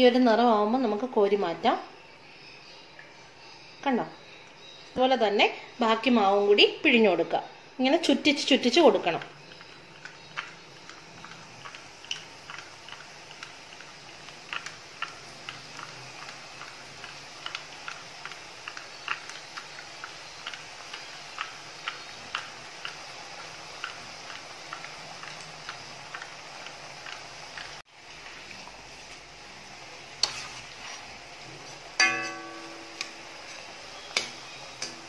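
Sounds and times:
dough sizzling in hot oil: 0.0s - 35.0s
oil pops and crackles: 9.1s - 29.3s, 33.0s - 35.0s.

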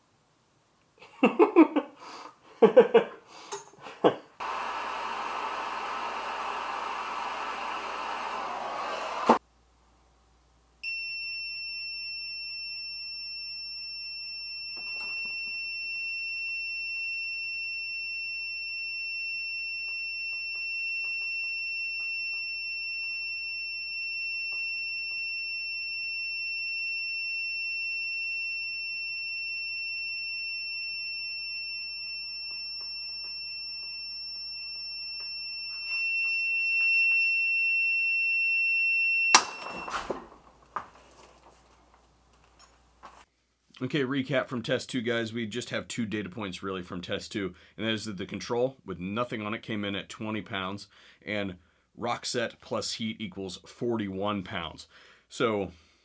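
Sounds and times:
long high beep: 10.8s - 40.2s
sharp crack of metal breaking loose: 39.3s - 40.5s.

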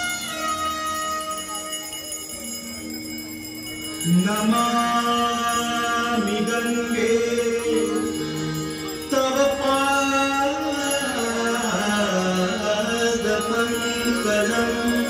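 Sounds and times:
held instrumental tones: 0.0s - 15.0s
devotional singing: 4.0s - 15.0s.

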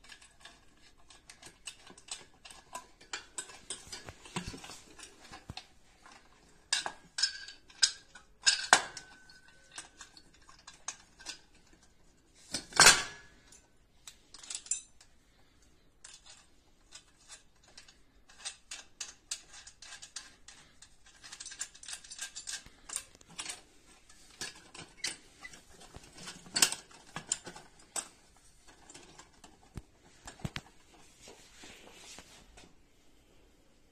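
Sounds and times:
metal clicks and clinks: 12.8s - 15.1s, 16.0s - 29.8s.

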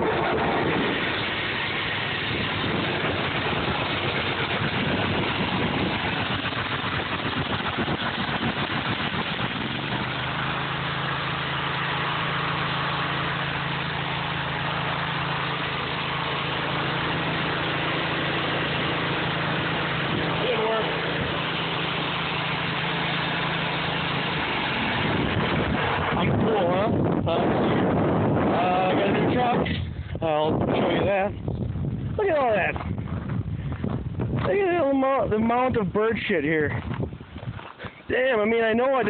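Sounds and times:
lawn mower engine running: 0.0s - 30.4s.

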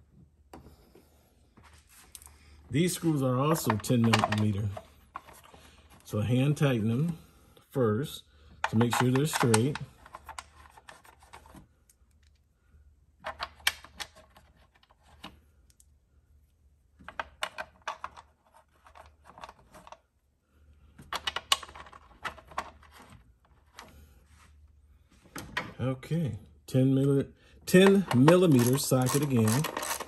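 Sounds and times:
screws clicking on plastic cover: 27.8s - 30.0s.

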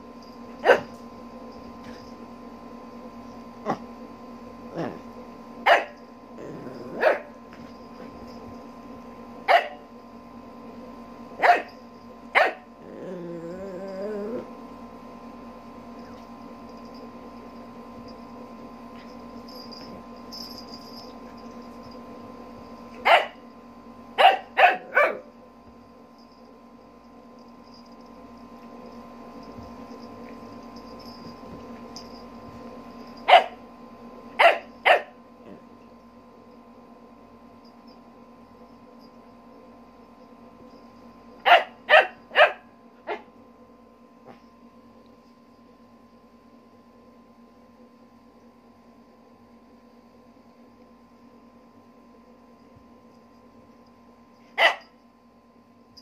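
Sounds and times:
faint steady background hum: 0.0s - 56.0s
puppy barking: 0.6s - 0.9s, 5.7s - 6.0s, 6.9s - 7.3s, 9.5s - 9.8s, 11.4s - 11.8s, 12.4s - 12.7s, 23.0s - 23.4s, 24.2s - 25.3s, 33.3s - 33.6s, 34.4s - 35.2s, 41.4s - 43.3s, 54.6s - 54.9s.

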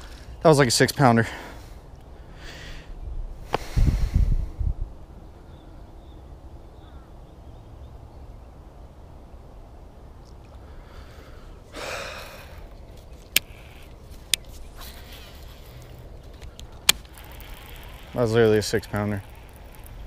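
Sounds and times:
wind rumble on microphone: 3.0s - 5.7s
person sighing: 11.7s - 12.7s
fishing reel clicks: 13.3s - 20.0s.

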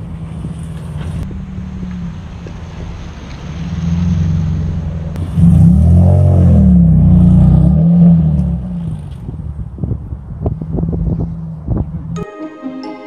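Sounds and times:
car engine accelerating past: 1.0s - 9.1s.

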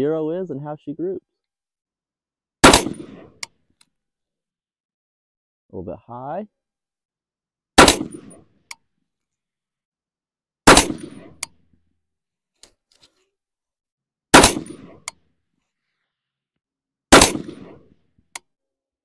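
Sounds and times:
rifle shots echoing: 2.6s - 3.4s, 7.8s - 8.4s, 10.7s - 11.5s, 14.3s - 15.1s, 17.1s - 17.9s.

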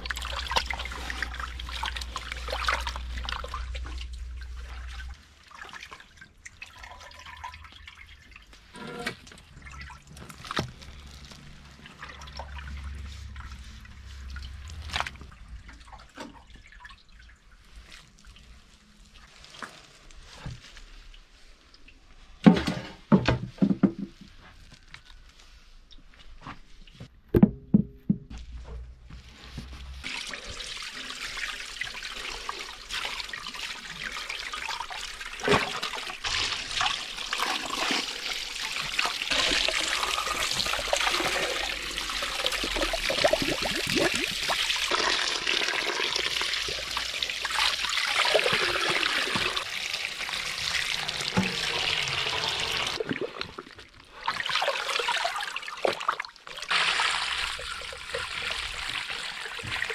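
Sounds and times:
running water splashing: 29.9s - 59.9s.

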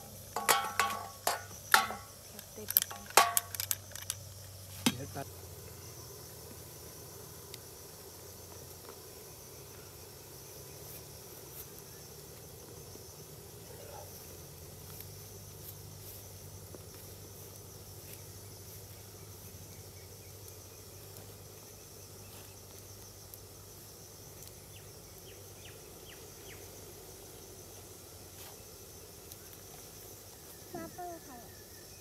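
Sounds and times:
insects chirring: 0.0s - 32.0s.

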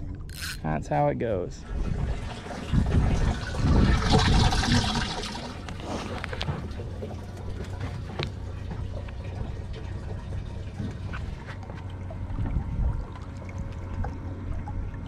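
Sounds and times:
low motor hum: 0.0s - 15.0s
water trickling and splashing: 0.0s - 15.0s.

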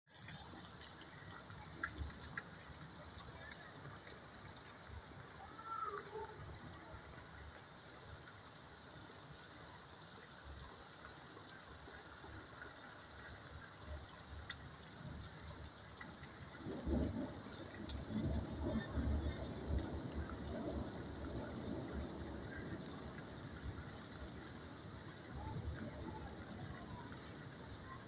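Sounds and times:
rain falling: 0.1s - 28.0s
faint bird call: 5.4s - 6.4s.

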